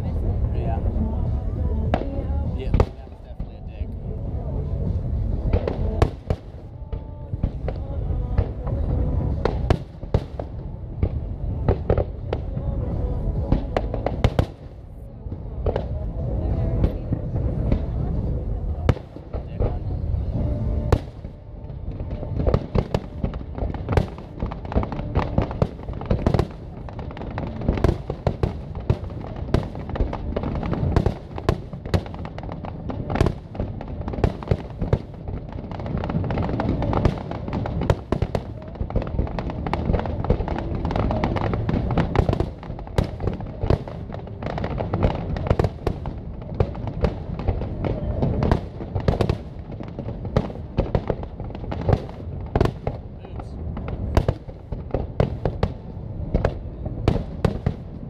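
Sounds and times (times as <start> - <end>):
fireworks bursting: 0.0 - 58.0
low rumble: 0.0 - 58.0.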